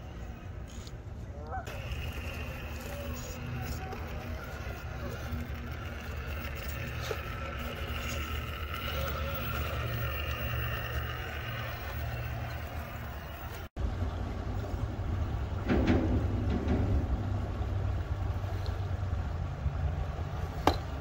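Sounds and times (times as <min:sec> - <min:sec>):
electric motor whine: 0:01.7 - 0:13.7.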